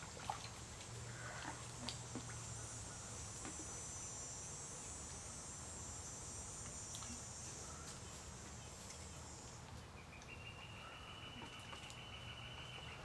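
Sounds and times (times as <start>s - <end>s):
faint water splashes: 0.0s - 3.9s
insects buzzing: 0.6s - 13.0s.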